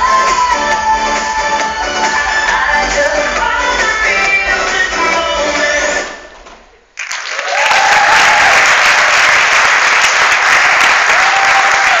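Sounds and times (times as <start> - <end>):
dance music: 0.0 - 6.4
audience applauding: 7.0 - 12.0
long cheers: 7.4 - 9.2, 10.9 - 12.0.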